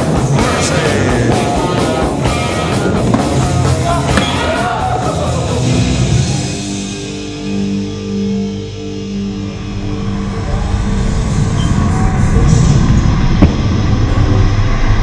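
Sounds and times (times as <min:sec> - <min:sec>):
rock music with guitar: 0:00.0 - 0:09.3.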